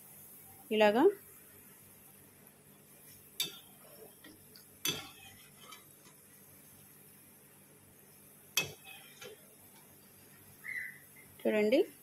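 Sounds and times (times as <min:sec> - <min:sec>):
frying oil sizzling: 0:02.9 - 0:12.0
metal skimmer clinking on pan: 0:04.8 - 0:05.8, 0:08.6 - 0:09.3.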